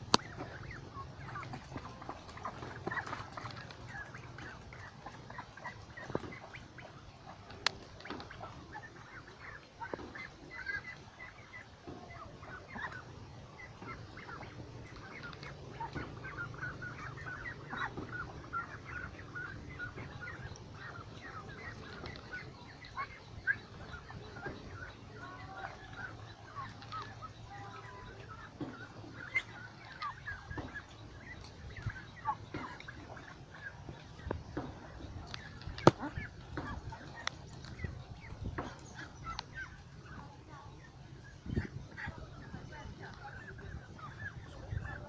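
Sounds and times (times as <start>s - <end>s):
ducks quacking: 0.0s - 45.0s.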